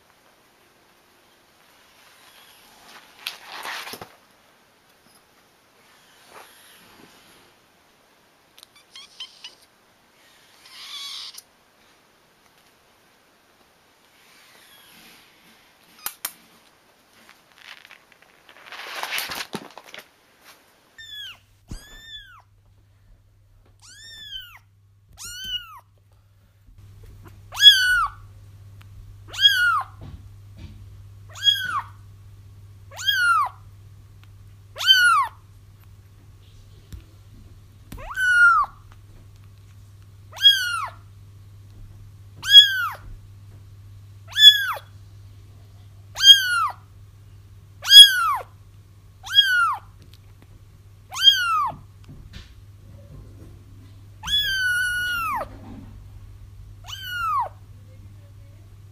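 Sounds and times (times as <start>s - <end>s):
low steady hum: 0.0s - 58.9s
brief rustle: 2.0s - 4.2s, 14.3s - 20.6s
kittens meowing: 8.7s - 9.7s, 10.4s - 11.4s, 21.0s - 22.5s, 23.8s - 25.9s, 27.2s - 28.3s, 29.3s - 30.1s, 31.3s - 32.0s, 32.9s - 33.6s, 34.8s - 35.4s, 37.9s - 38.9s, 40.3s - 41.0s, 42.4s - 43.1s, 44.3s - 44.9s, 46.1s - 46.8s, 47.8s - 48.5s, 49.2s - 50.0s, 51.1s - 51.8s, 54.2s - 55.6s, 56.8s - 57.6s.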